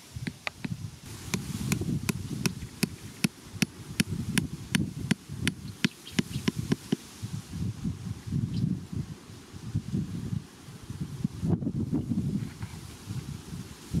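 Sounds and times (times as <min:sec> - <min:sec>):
hatchet tapping wooden peg: 0:01.3 - 0:07.0.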